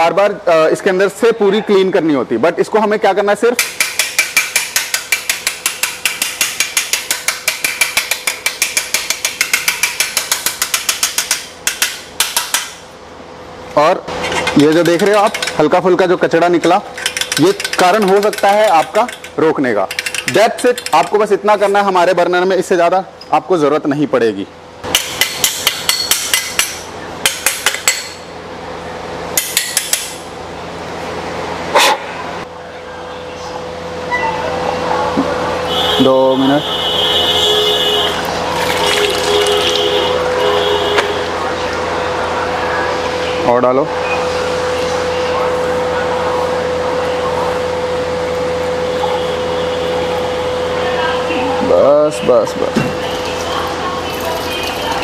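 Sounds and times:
rapid metallic tapping on tube: 0:03.6 - 0:12.8, 0:16.9 - 0:21.1.

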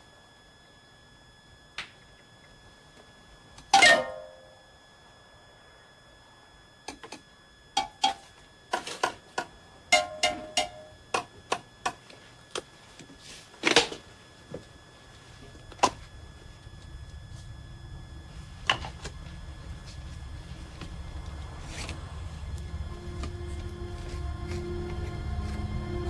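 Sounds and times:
low musical drone: 0:09.9 - 0:11.0, 0:15.1 - 0:26.0.

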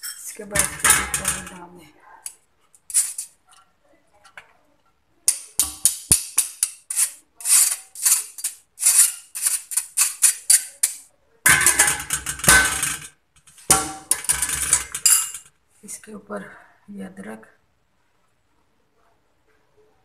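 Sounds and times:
rice rattling in metal strainer: 0:02.9 - 0:03.4, 0:05.3 - 0:15.4.

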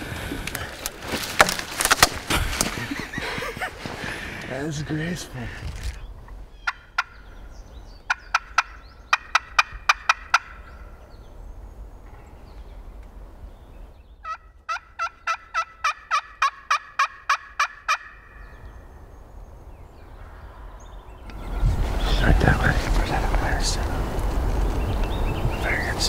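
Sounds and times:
turkey yelping: 0:06.5 - 0:07.2, 0:08.1 - 0:10.8, 0:14.2 - 0:18.5.

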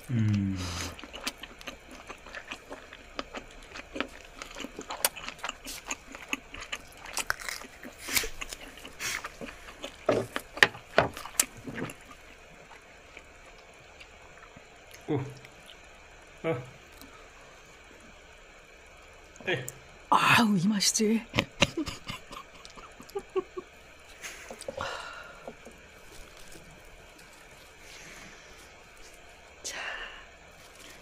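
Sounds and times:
wet chewing sounds: 0:00.0 - 0:15.9, 0:21.3 - 0:29.6, 0:30.4 - 0:31.0.

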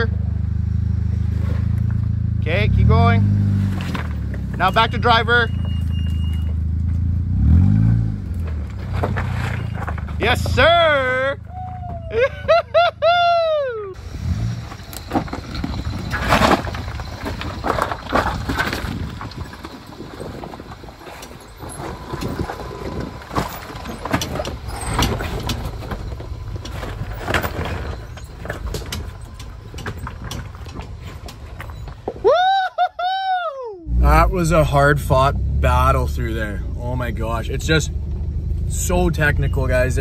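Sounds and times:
car engine at low revs: 0:00.0 - 0:32.2, 0:33.8 - 0:40.0
knocks and crunches on rocks: 0:08.4 - 0:10.8, 0:14.6 - 0:32.3.

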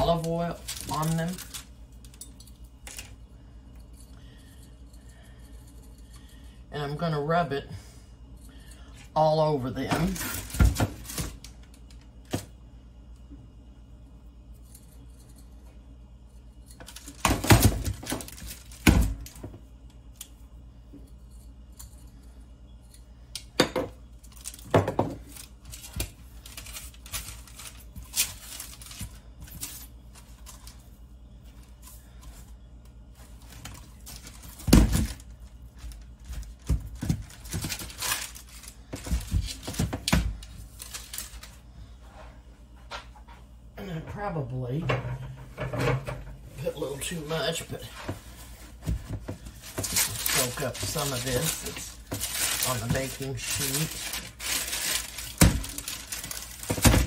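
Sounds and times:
parchment paper rustling: 0:00.0 - 0:02.2, 0:24.2 - 0:41.6, 0:46.6 - 0:57.0
low steady hum: 0:00.0 - 0:57.0.

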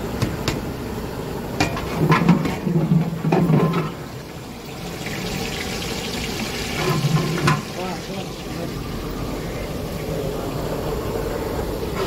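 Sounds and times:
water sloshing in a pot: 0:01.6 - 0:10.1.

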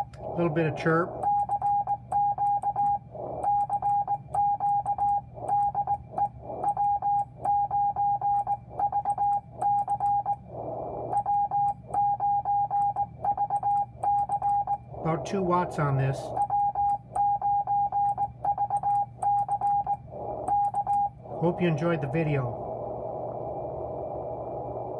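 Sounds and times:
radio noise: 0:00.0 - 0:24.9
morse code beeps: 0:01.1 - 0:10.4, 0:11.1 - 0:21.5.

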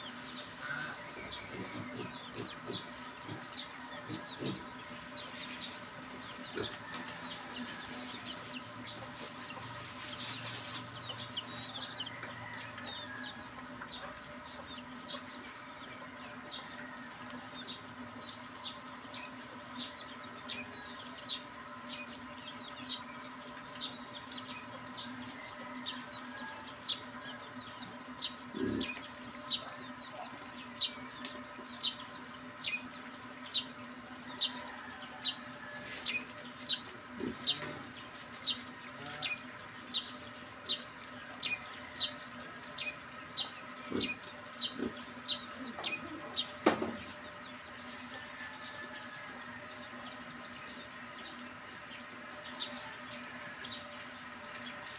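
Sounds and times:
pigs chewing feed: 0:00.0 - 0:31.2
chickens clucking: 0:00.0 - 0:54.9.

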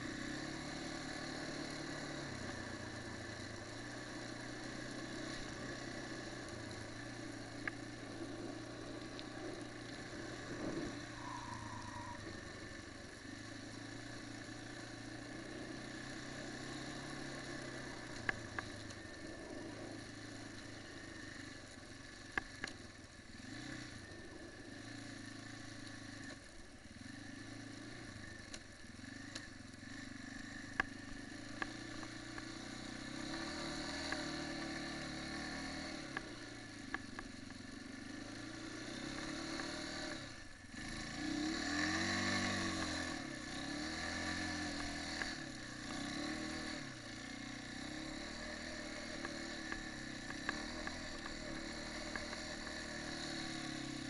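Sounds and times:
quad bike engine revving: 0:00.0 - 0:22.7, 0:23.3 - 0:54.0.

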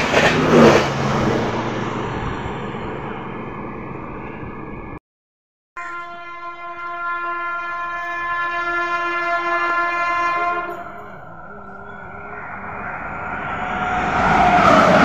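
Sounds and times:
train running noise: 0:00.0 - 0:05.0, 0:06.1 - 0:15.0
locomotive horn blast: 0:05.8 - 0:12.8.

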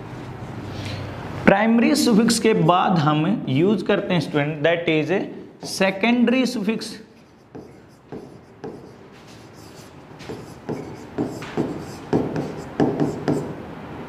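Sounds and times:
pen scratching on a board: 0:07.2 - 0:13.6.

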